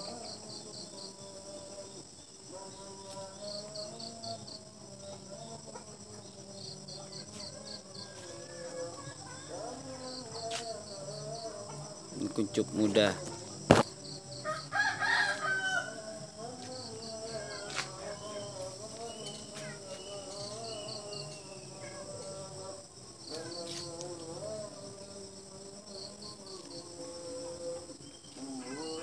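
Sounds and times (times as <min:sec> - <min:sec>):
insects chirping: 0:00.0 - 0:29.0.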